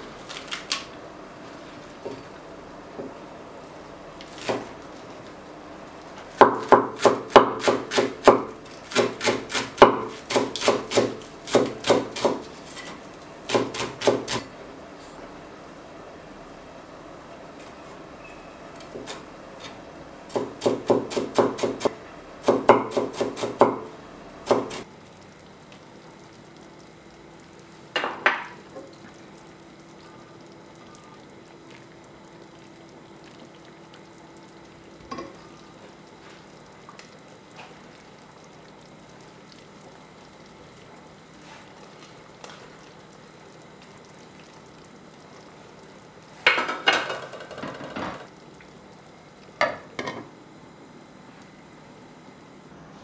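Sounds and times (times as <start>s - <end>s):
cleaver chopping on cutting board: 20.3s - 23.9s.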